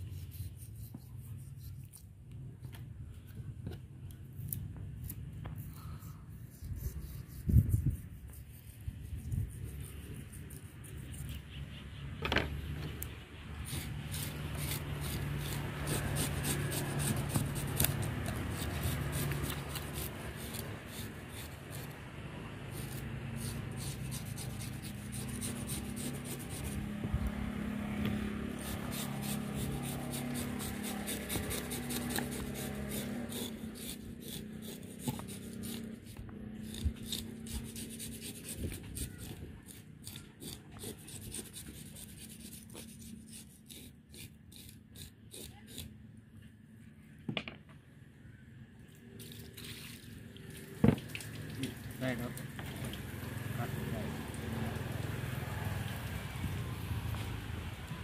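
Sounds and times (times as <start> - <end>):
fish scaler scraping scales: 4.4 - 11.4, 13.6 - 22.0, 22.6 - 27.0, 28.2 - 46.0.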